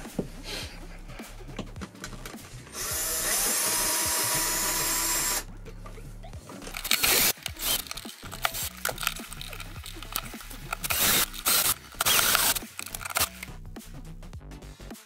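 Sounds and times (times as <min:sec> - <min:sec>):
cordless drill whining: 0:02.7 - 0:05.5, 0:10.8 - 0:12.6.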